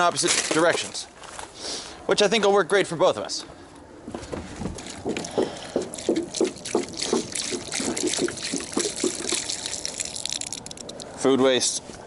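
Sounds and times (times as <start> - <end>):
milk glugging from jug: 4.8 - 11.0
milk splashing on ground: 4.8 - 11.1.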